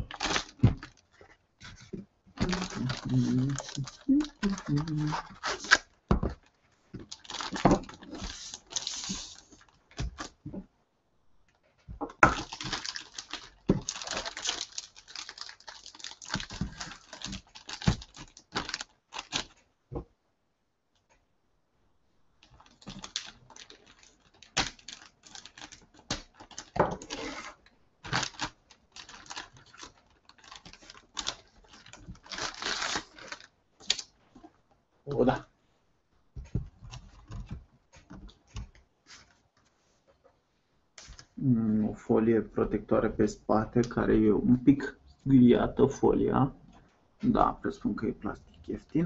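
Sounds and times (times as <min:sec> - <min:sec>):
plastic bag crinkling: 0:00.0 - 0:10.4, 0:12.3 - 0:19.6, 0:22.4 - 0:34.1.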